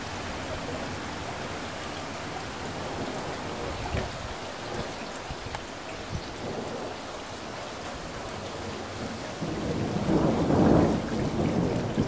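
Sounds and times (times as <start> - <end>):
steady rain: 0.0 - 12.0
thunder rolling: 8.3 - 12.0.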